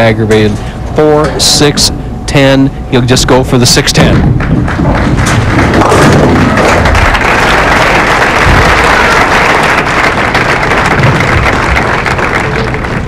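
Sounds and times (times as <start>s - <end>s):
crowd applauding: 4.7s - 13.0s.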